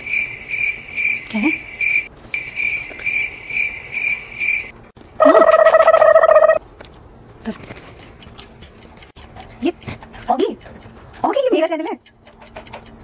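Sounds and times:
cricket chirping: 0.0s - 4.7s.

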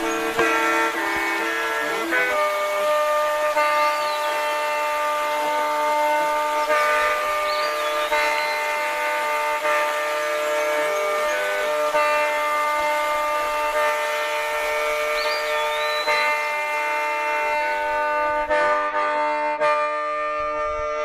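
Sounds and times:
gliding high notes: 0.0s - 19.0s
soundtrack music with sustained chord: 0.0s - 21.0s.

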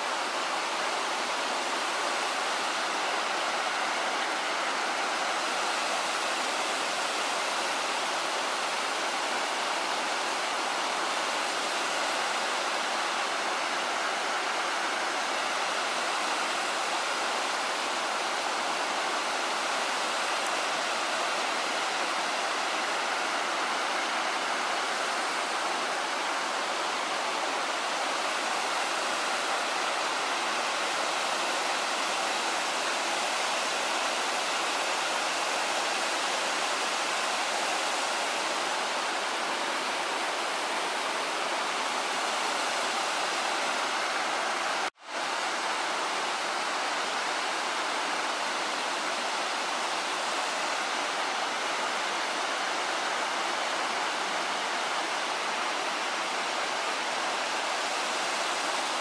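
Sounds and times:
waterfall rushing and splashing: 0.0s - 59.0s.

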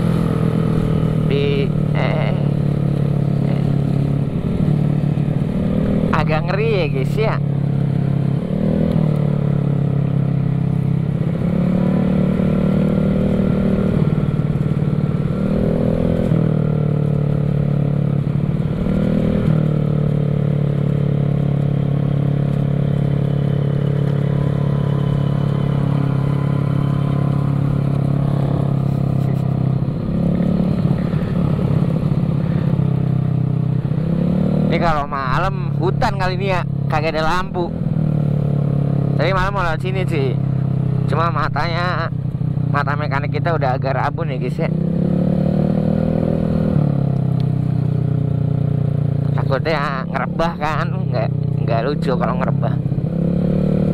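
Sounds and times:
scooter engine revving: 0.0s - 53.9s.

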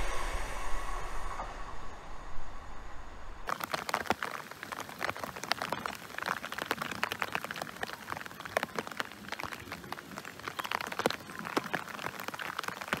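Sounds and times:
light rain hiss: 0.0s - 13.0s
rain drops tapping: 3.5s - 13.0s.

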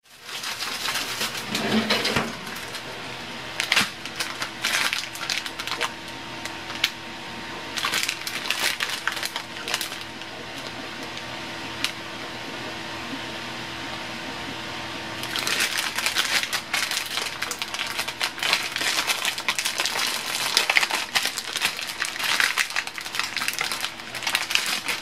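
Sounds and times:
plastic package crinkling: 0.0s - 3.0s, 3.6s - 7.0s, 7.7s - 11.2s, 15.2s - 25.0s
faint steady hum: 0.1s - 25.0s.

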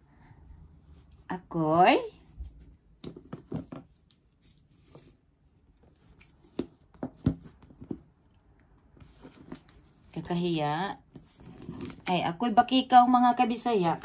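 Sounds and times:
cardboard and tape scraping: 11.1s - 12.2s.

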